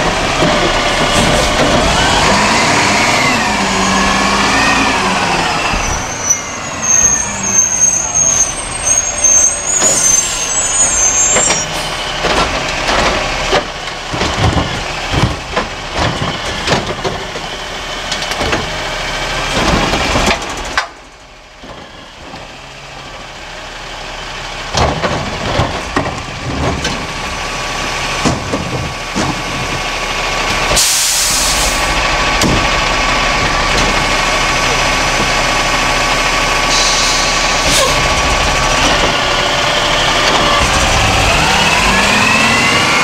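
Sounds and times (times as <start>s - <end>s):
garbage truck engine running: 0.0s - 43.0s
brake squeal: 0.9s - 12.3s, 30.4s - 43.0s.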